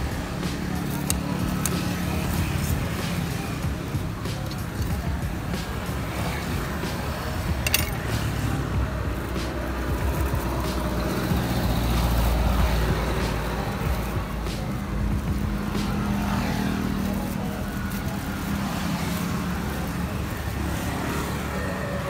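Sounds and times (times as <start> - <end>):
vehicle engine rumble: 0.0 - 22.0.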